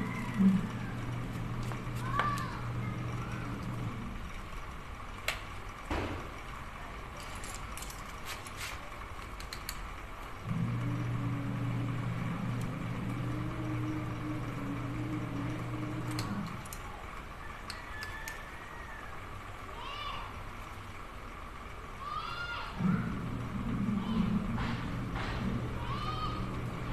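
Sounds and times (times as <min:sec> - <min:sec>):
low motor hum: 0:00.0 - 0:26.9
tools clinking on metal engine: 0:07.0 - 0:08.6.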